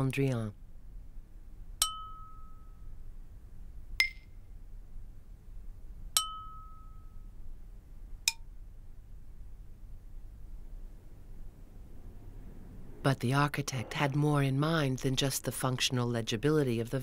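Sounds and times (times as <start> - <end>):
bright struck ringing tones: 1.8 - 3.0, 6.2 - 7.4.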